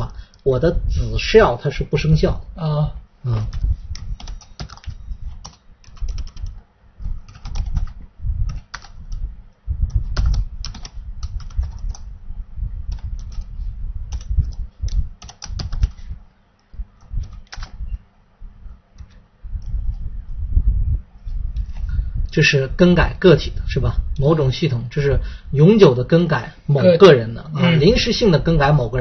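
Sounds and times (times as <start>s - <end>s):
typing on computer keyboard: 3.5s - 6.6s, 7.2s - 9.0s, 10.0s - 12.1s, 12.9s - 13.5s, 14.1s - 16.0s, 17.2s - 17.8s.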